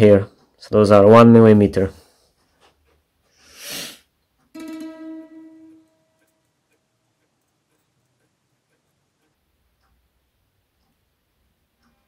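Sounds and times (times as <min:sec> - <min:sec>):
short puff of noise: 0:03.4 - 0:04.1
ringing twang: 0:04.6 - 0:06.0.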